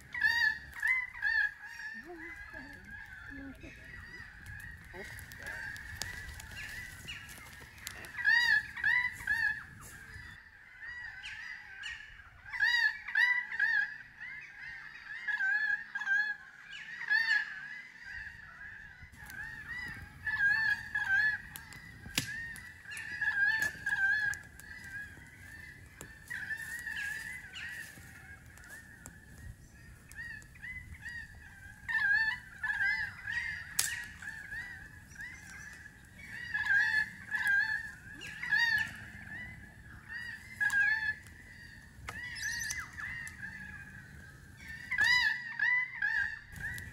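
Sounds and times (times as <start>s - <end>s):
birds calling: 0.0s - 46.9s.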